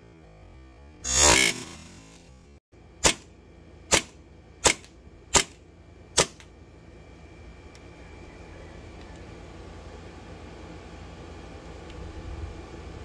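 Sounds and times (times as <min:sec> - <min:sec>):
airsoft pistol shots: 0:03.0 - 0:03.3, 0:03.9 - 0:05.6, 0:06.2 - 0:06.4.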